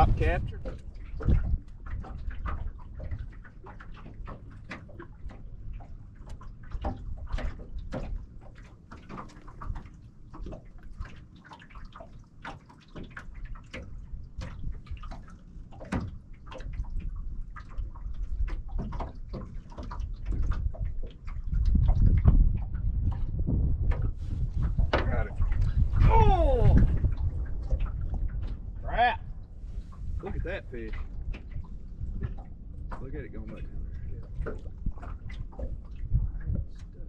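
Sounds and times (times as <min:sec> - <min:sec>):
wind rumble on microphone: 0:00.0 - 0:11.2, 0:13.0 - 0:37.0
waves lapping against boat hull: 0:00.0 - 0:37.0.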